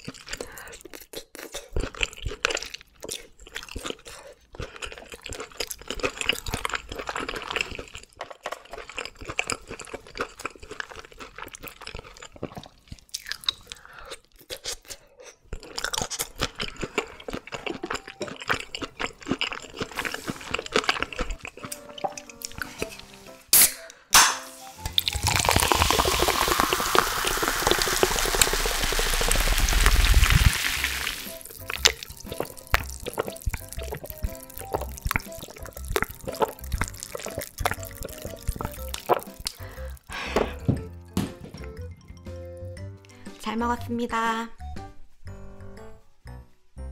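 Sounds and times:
chewing and crunching: 0:00.0 - 0:23.1, 0:25.0 - 0:40.1
carbonated drink pouring and fizzing: 0:24.6 - 0:39.8.

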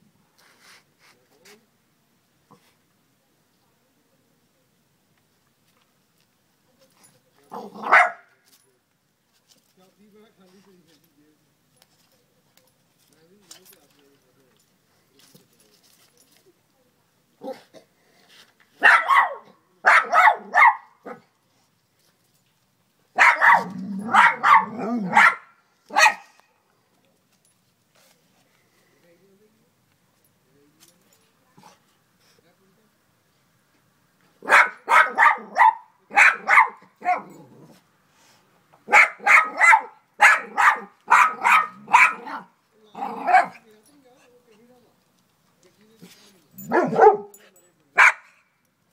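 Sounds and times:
dog barking: 0:07.6 - 0:08.3, 0:18.8 - 0:21.3, 0:23.2 - 0:26.4, 0:34.4 - 0:37.3, 0:38.9 - 0:42.5, 0:43.2 - 0:43.6, 0:46.7 - 0:47.4, 0:48.0 - 0:48.4.

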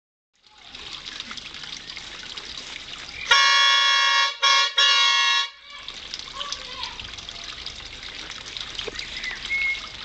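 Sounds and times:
plastic horn blasts: 0:03.3 - 0:05.6.

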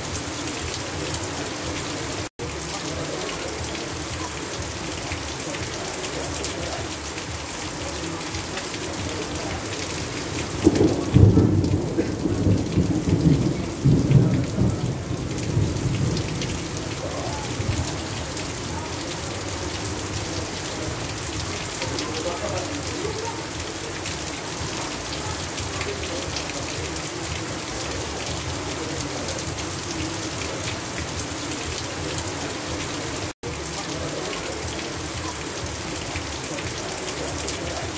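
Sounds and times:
heavy rain: 0:00.0 - 0:37.9
thunder rumbling: 0:10.0 - 0:21.5.

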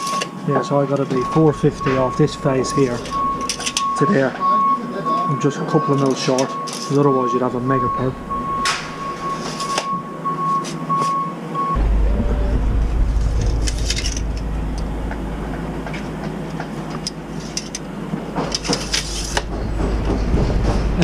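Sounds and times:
low rumble: 0:01.2 - 0:04.0, 0:07.5 - 0:09.4, 0:11.7 - 0:17.1.

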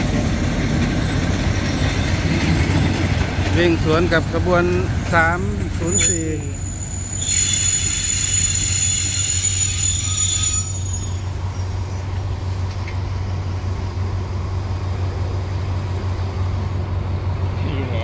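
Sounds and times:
train rumbling: 0:00.0 - 0:18.0
train wheels squealing: 0:05.7 - 0:12.2.

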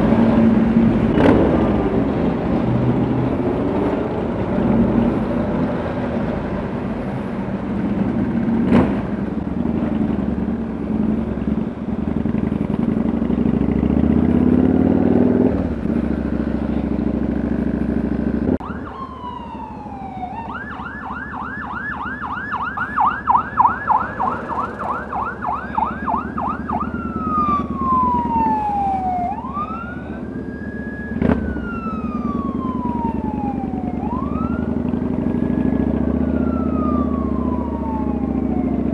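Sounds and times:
motorcycle engines running: 0:00.0 - 0:38.9
emergency vehicle siren: 0:18.5 - 0:38.9.

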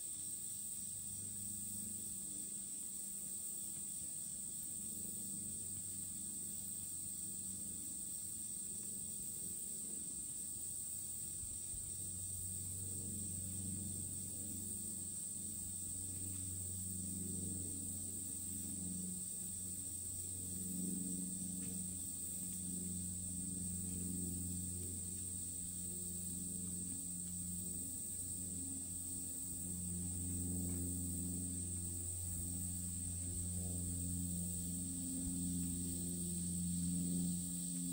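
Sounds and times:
insect chorus drone: 0:00.0 - 0:37.9
low hum: 0:11.4 - 0:37.9.

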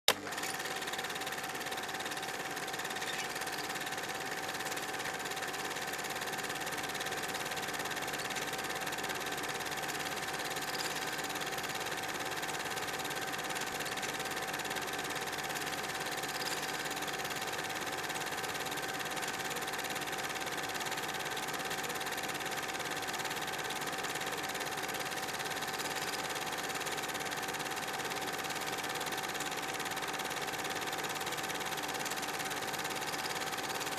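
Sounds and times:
film projector whirring: 0:00.1 - 0:33.9.

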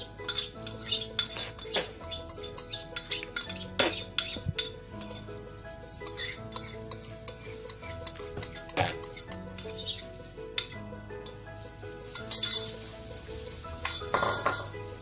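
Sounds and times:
metal spoon scraping a bowl: 0:00.0 - 0:05.3, 0:06.0 - 0:10.0, 0:12.1 - 0:12.8, 0:13.8 - 0:14.8
background music: 0:00.0 - 0:15.0.

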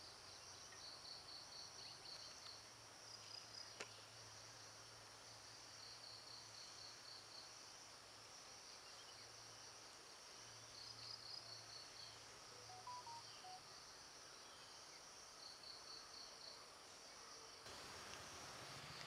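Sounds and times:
insect chirping in rapid pulses: 0:00.0 - 0:19.0.

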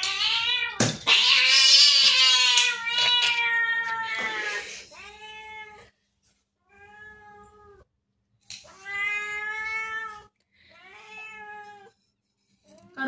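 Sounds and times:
cat meowing: 0:00.0 - 0:05.9, 0:08.7 - 0:11.9.

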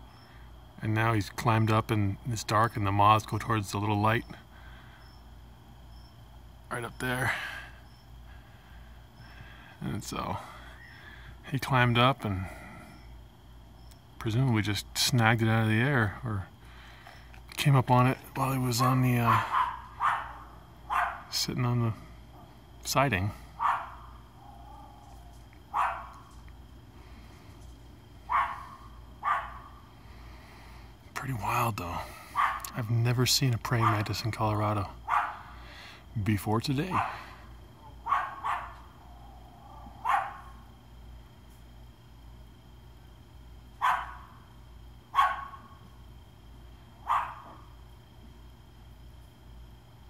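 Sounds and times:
faint hum: 0:00.0 - 0:50.0
dog barking: 0:19.3 - 0:21.3, 0:23.6 - 0:25.0, 0:25.7 - 0:26.3, 0:28.3 - 0:29.7, 0:32.4 - 0:32.7, 0:33.8 - 0:34.0, 0:35.0 - 0:35.5, 0:36.9 - 0:37.2, 0:37.9 - 0:38.9, 0:39.7 - 0:40.6, 0:43.8 - 0:44.3, 0:45.1 - 0:45.7, 0:47.0 - 0:47.7.

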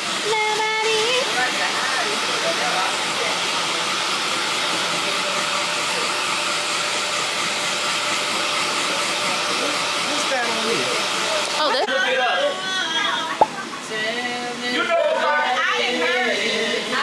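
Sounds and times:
hair dryer running: 0:00.0 - 0:14.6.

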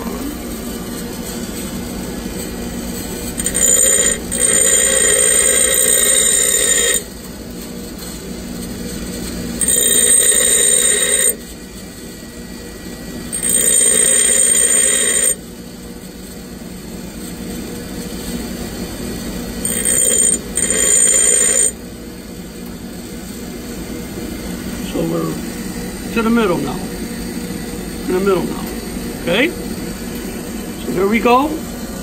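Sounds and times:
bench grinder humming: 0:00.0 - 0:07.2, 0:09.6 - 0:11.6, 0:12.7 - 0:15.4, 0:18.2 - 0:21.9, 0:22.8 - 0:32.0
drill bit grinding whine: 0:00.0 - 0:07.2, 0:09.6 - 0:32.0.

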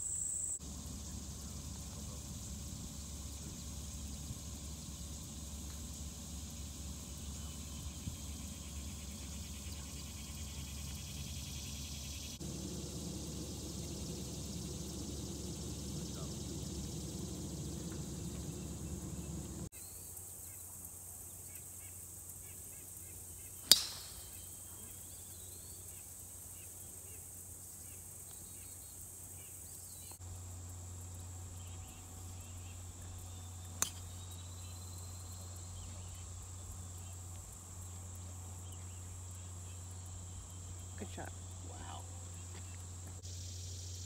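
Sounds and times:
high insect drone: 0:00.0 - 0:44.0
birds chirping: 0:07.0 - 0:19.7
golf club striking ball: 0:23.6 - 0:24.5, 0:33.8 - 0:34.1.

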